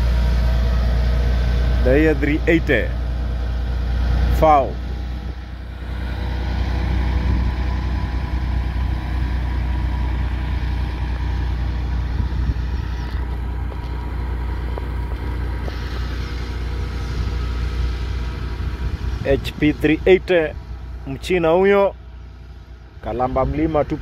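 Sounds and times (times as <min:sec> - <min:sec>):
truck diesel engine rumbling: 0:00.0 - 0:24.0.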